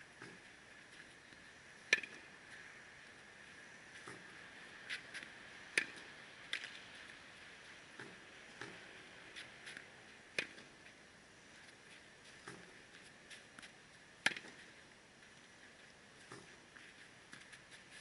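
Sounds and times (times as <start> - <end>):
racket striking tennis balls: 0.2 - 0.4, 1.9 - 2.3, 4.0 - 6.8, 7.9 - 10.8, 12.4 - 14.8, 16.2 - 16.7
balls bouncing on court: 1.9 - 2.3, 4.0 - 4.4, 7.9 - 8.8, 14.2 - 14.7.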